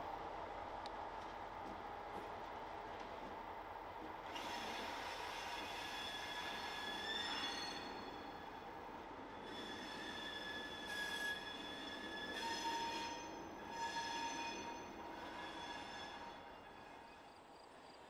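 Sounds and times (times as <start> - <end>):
steel wheels squealing on rail: 4.2 - 17.4.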